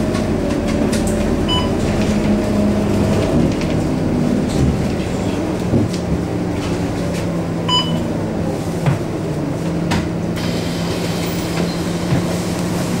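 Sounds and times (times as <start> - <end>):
bus engine drone: 0.0 - 13.0
short electronic beep: 7.7 - 8.0.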